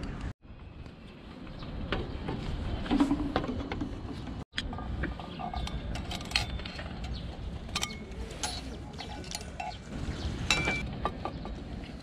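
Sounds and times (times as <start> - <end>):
birds chirping: 5.0 - 12.0.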